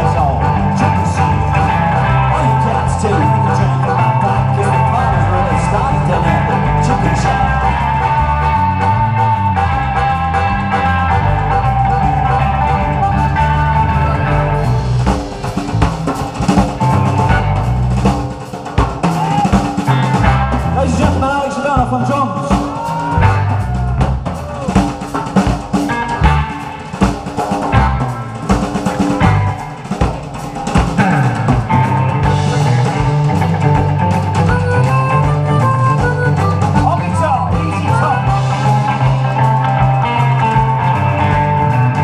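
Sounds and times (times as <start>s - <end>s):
bass guitar: 0.0s - 42.0s
drum kit: 0.0s - 42.0s
electric guitar: 0.0s - 42.0s
harmonica: 0.2s - 15.5s, 29.1s - 41.9s.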